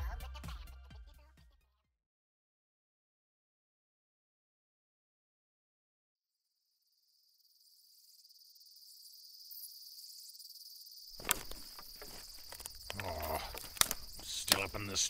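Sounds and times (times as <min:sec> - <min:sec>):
crickets chirring: 0:06.3 - 0:15.0
rustling: 0:11.2 - 0:15.0
sharp clicks: 0:11.2 - 0:15.0.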